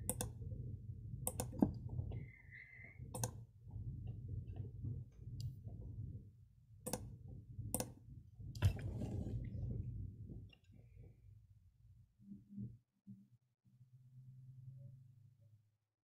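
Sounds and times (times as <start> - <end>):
computer mouse clicks: 0.0 - 0.4, 1.2 - 1.8, 3.1 - 3.4, 6.9 - 7.1, 7.7 - 8.0
low steady hum: 0.0 - 15.6.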